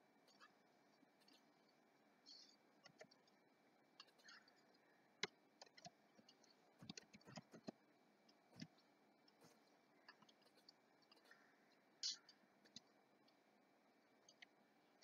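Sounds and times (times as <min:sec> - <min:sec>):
mouse and keyboard clicks: 0:04.0 - 0:07.8.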